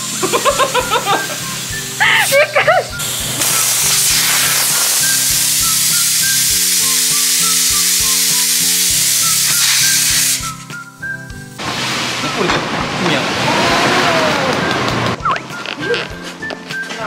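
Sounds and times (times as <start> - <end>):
compressed air hissing into tyre: 0.0 - 12.0
background music with light beat: 0.0 - 17.0.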